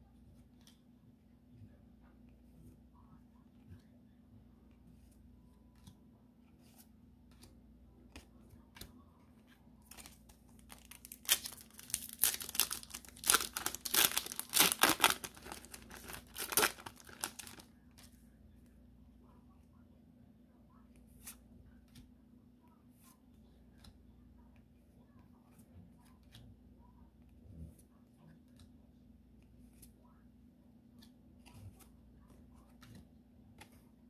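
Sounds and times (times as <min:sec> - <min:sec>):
foil wrapper crackling and ripping: 0:09.9 - 0:17.6.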